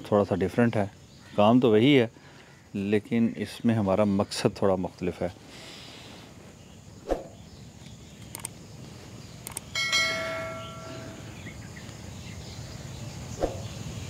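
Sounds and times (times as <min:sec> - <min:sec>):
outdoor background noise: 0:00.0 - 0:14.0
quick clicks: 0:08.2 - 0:08.6, 0:09.4 - 0:09.7
bell chime: 0:09.8 - 0:11.4.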